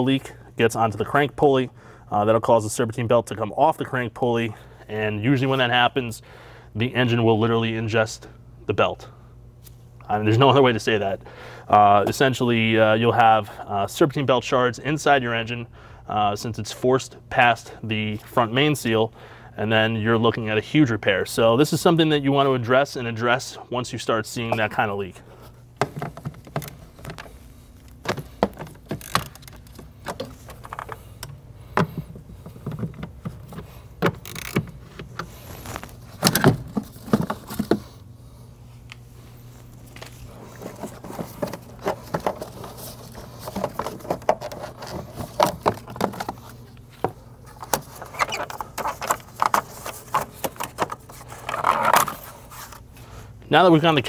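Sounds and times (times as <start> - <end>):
steady low hum: 0.0 - 54.0
hand tools clicking and clunking: 25.8 - 37.9.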